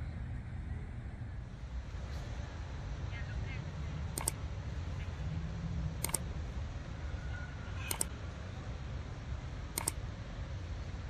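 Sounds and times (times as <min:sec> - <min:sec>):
low background rumble: 0:00.0 - 0:11.0
mouse double clicks: 0:04.2 - 0:04.4, 0:06.0 - 0:06.2, 0:07.8 - 0:08.1, 0:09.7 - 0:10.0.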